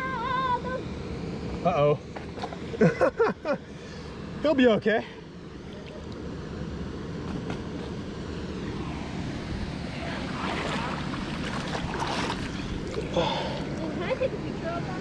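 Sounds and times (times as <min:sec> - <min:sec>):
river water splashing around legs: 0:08.7 - 0:14.3.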